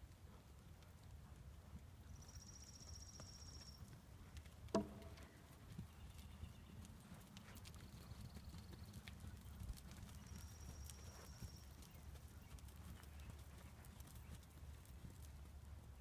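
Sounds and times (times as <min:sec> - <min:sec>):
sharp knock: 0:04.8 - 0:05.2.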